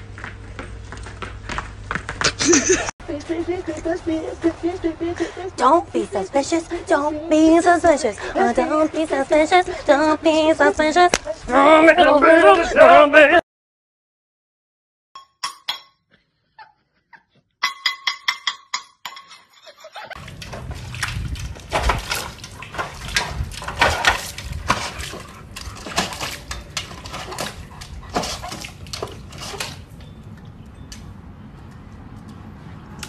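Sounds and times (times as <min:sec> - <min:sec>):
water splashing in metal bowl: 0:20.2 - 0:29.8.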